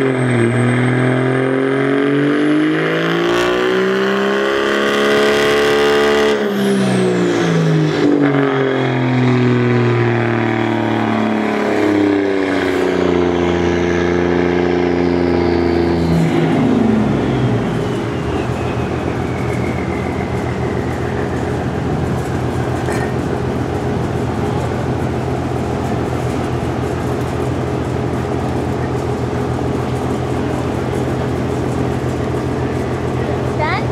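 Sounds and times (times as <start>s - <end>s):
truck engine revving and idling: 0.0s - 33.9s
faint high whine: 12.0s - 33.4s.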